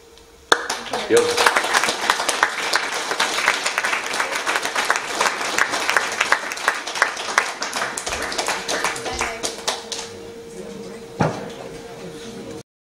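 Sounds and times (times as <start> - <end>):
audience applauding: 0.5 - 10.2.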